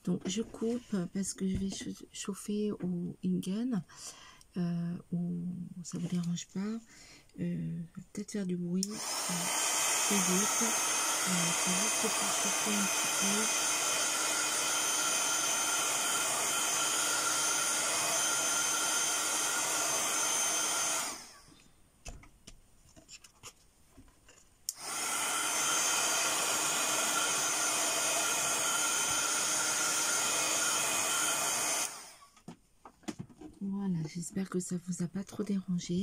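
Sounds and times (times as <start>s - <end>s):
heat gun blowing: 8.8s - 21.5s, 24.7s - 32.4s.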